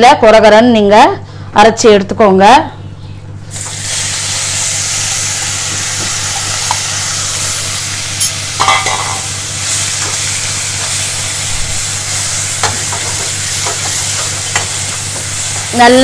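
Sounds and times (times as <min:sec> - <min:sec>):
onion sizzling in hot oil: 0:03.5 - 0:16.0.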